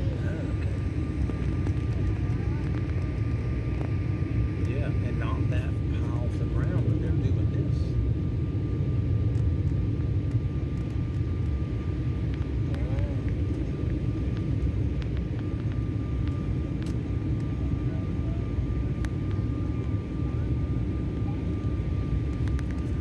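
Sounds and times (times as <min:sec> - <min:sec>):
airliner cabin rumble: 0:00.0 - 0:23.0.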